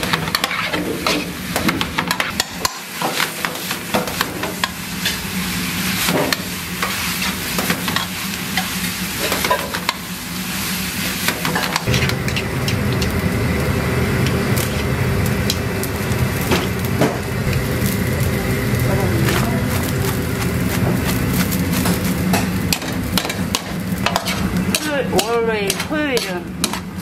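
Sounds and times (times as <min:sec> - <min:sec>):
metal spoon scraping a pan: 0:00.0 - 0:01.4, 0:21.0 - 0:27.0
vegetables sizzling in a wok: 0:00.0 - 0:27.0
water boiling hard: 0:00.0 - 0:27.0.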